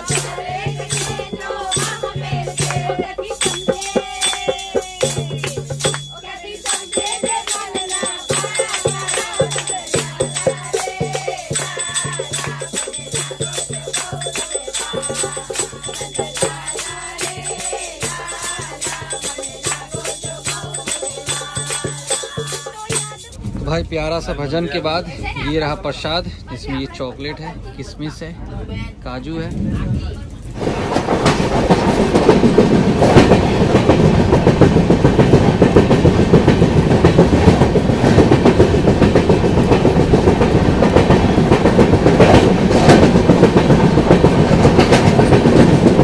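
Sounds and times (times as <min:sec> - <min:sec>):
rhythmic hand clapping: 0:00.0 - 0:23.4
tambourines jingling: 0:00.0 - 0:23.4
women singing together: 0:00.0 - 0:23.4.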